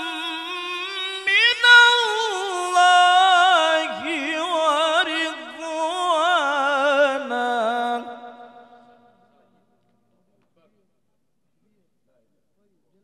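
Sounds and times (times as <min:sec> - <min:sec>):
man chanting melodically: 0:00.0 - 0:09.6.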